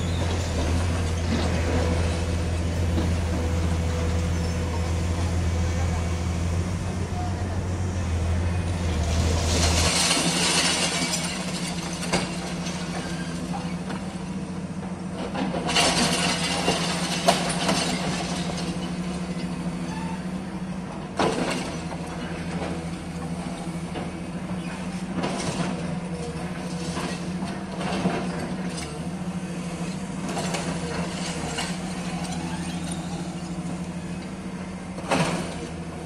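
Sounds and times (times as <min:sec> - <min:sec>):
excavator engine running: 0:00.0 - 0:36.0
concrete rubble clattering: 0:09.3 - 0:13.6, 0:15.5 - 0:18.9.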